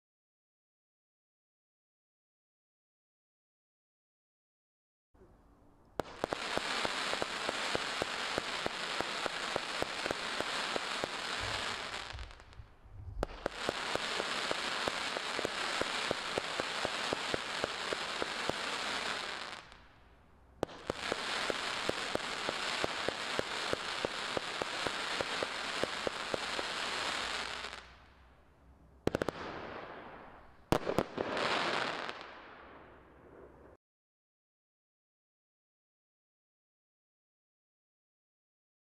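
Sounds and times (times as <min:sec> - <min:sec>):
firework bangs: 0:06.0 - 0:19.8, 0:20.6 - 0:27.9, 0:29.1 - 0:33.5
firework crackling: 0:06.0 - 0:20.0, 0:20.6 - 0:28.0, 0:29.1 - 0:33.1.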